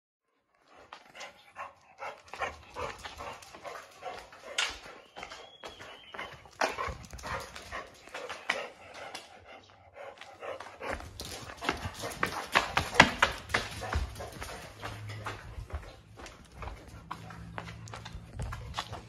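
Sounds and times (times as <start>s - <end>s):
dog panting: 0.5s - 19.0s
dog claws scrabbling on concrete: 10.2s - 19.0s.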